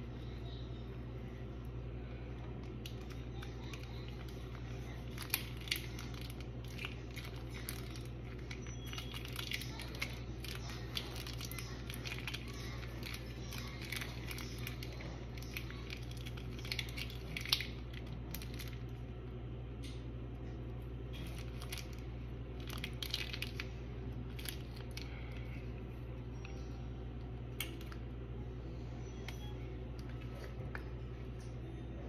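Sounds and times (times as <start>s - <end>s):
steady low hum: 0.0s - 32.0s
small clicks and crackles: 2.6s - 19.0s, 22.6s - 25.5s
sticky pancakes squishing and tearing: 2.7s - 18.9s.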